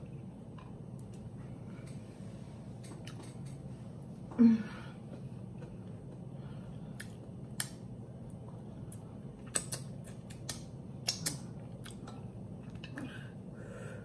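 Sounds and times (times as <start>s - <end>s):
low steady hum: 0.0s - 14.0s
wet chewing clicks and smacks: 7.0s - 13.0s.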